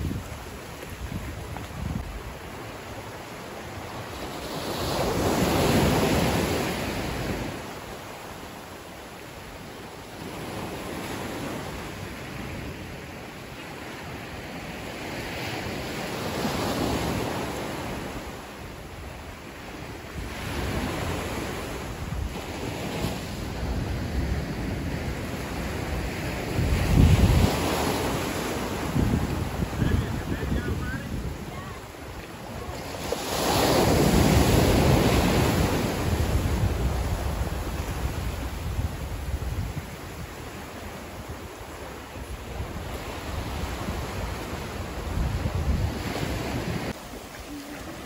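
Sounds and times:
wind buffeting microphone: 0:00.0 - 0:02.5, 0:19.8 - 0:48.0
small waves washing on beach: 0:00.0 - 0:48.0.

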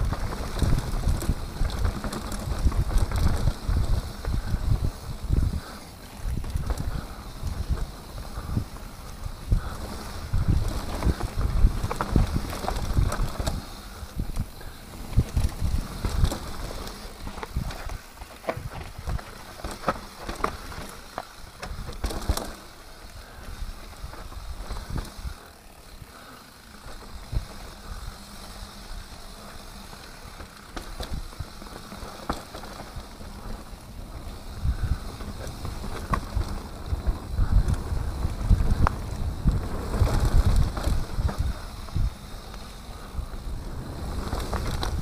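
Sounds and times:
bike knocking and rattling: 0:00.0 - 0:45.0
bike tyres rolling over dirt: 0:00.0 - 0:45.0.

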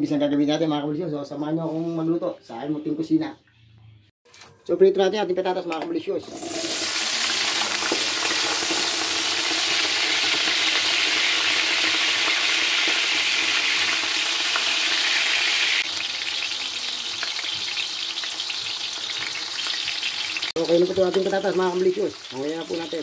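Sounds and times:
potatoes sizzling in hot oil: 0:06.2 - 0:23.0.

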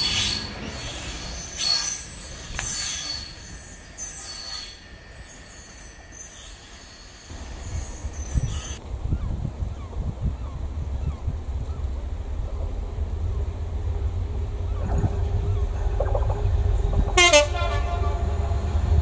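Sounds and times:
train wheels squealing on rails: 0:00.0 - 0:08.8
low rumbling: 0:07.3 - 0:19.0.

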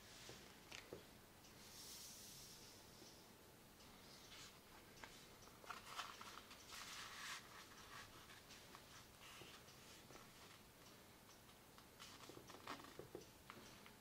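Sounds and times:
paper rustling and crinkling: 0:05.6 - 0:09.6, 0:12.0 - 0:13.0.

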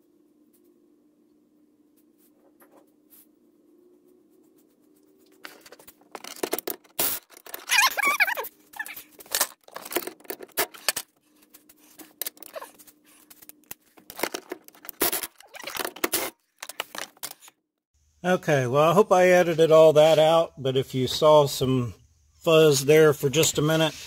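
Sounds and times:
handling noise rustling and clicking: 0:04.5 - 0:17.6
wavering squeak: 0:07.6 - 0:09.1.

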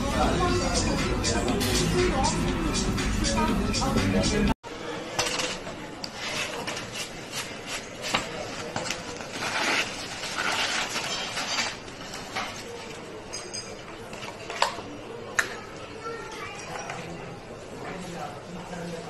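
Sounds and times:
kitchen clatter: 0:05.1 - 0:14.9.

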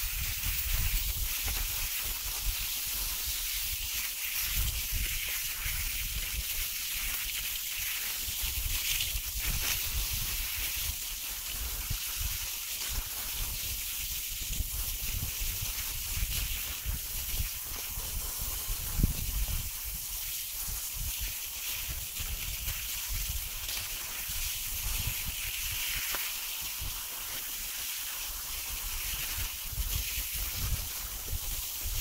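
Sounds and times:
skis gliding on snow: 0:00.0 - 0:32.0
wind buffeting microphone: 0:14.4 - 0:26.1.

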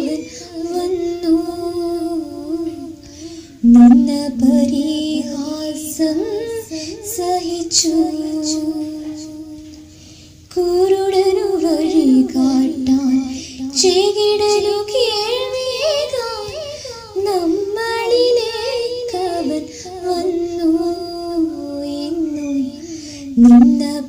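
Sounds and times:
woman singing devotional song: 0:00.0 - 0:24.0.

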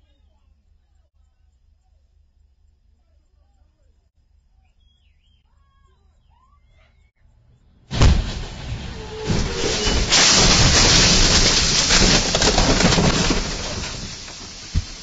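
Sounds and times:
vehicle crash: 0:07.9 - 0:15.0
windscreen shattering: 0:07.9 - 0:15.0.

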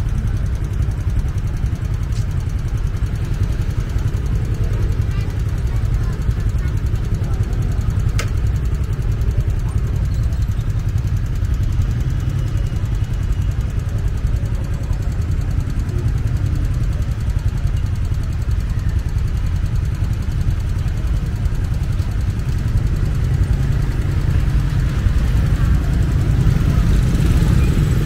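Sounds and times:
motorbikes idling: 0:00.0 - 0:28.0
street noise: 0:00.0 - 0:28.0.

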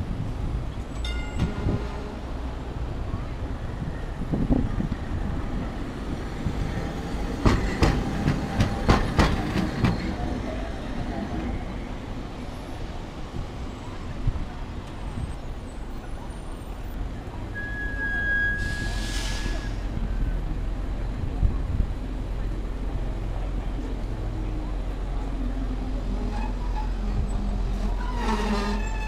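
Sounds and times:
city street noise: 0:00.0 - 0:29.0
tram wheels clacking: 0:00.7 - 0:03.0, 0:04.5 - 0:12.4, 0:22.4 - 0:29.0.

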